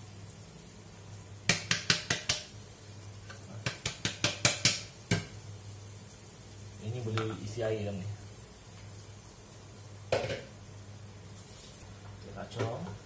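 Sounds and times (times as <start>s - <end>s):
utensil tapping metal pot: 1.5s - 2.5s, 3.2s - 5.4s.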